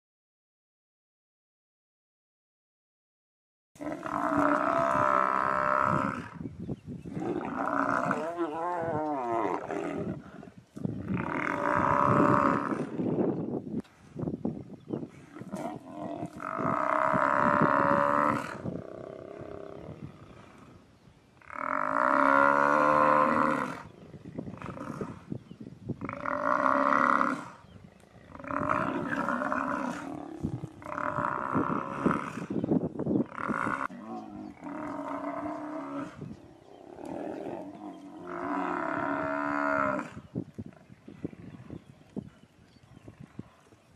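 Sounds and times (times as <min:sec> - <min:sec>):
lions growling: 0:07.1 - 0:13.2, 0:26.0 - 0:32.6, 0:33.3 - 0:41.9
buffalo bellowing in distress: 0:15.4 - 0:19.7.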